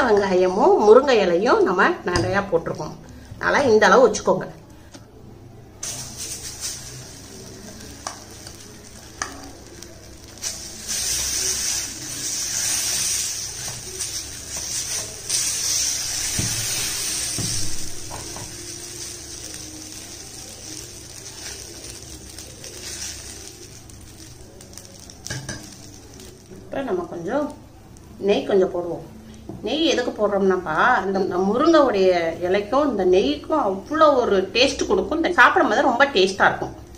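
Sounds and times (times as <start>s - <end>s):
steel spoon scraping a pan: 5.8s - 26.3s
batter sizzling on a hot pan: 5.8s - 28.2s.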